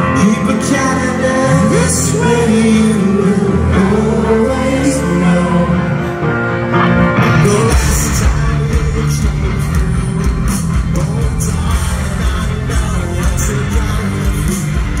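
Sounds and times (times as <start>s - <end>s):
electric guitars: 0.0s - 15.0s
male lead singer: 0.0s - 15.0s
drums with cymbal hits: 7.7s - 15.0s.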